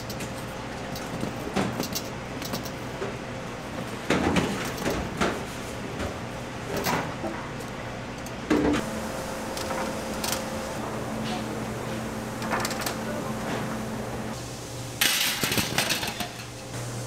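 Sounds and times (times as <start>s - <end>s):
steady low hum: 0.0s - 17.0s
kitchen knocks and clatters: 4.0s - 7.4s, 15.0s - 16.5s.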